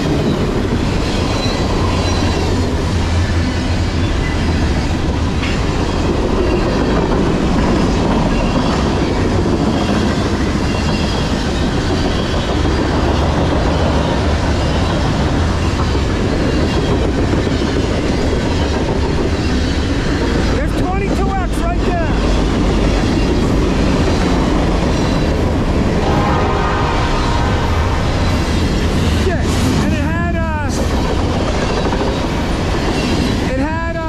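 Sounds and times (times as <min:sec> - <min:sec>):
train wheels rolling on rails: 0:00.0 - 0:34.0.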